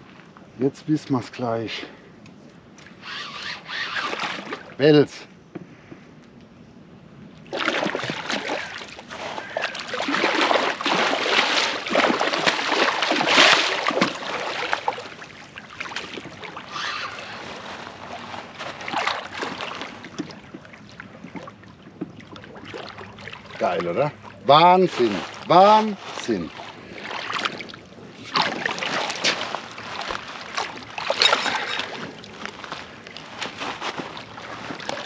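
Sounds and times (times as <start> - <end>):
fish splashing in water: 7.4 - 35.0.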